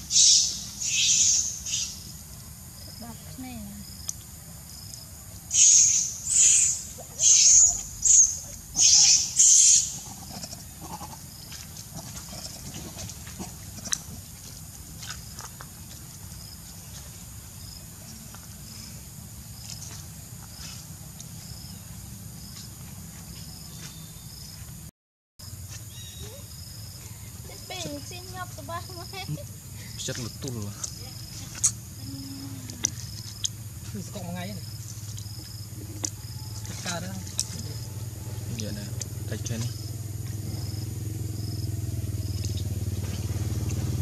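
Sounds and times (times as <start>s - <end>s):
monkey squealing: 5.5s - 11.2s.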